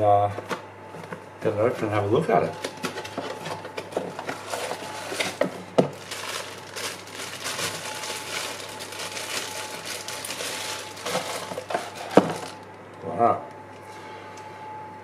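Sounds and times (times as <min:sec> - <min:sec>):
plastic packaging crinkling: 0:02.5 - 0:12.8.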